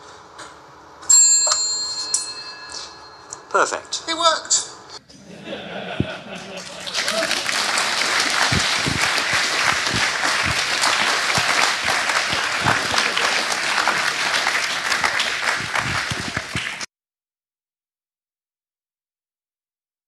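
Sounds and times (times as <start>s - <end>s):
audience applauding: 6.4s - 16.9s.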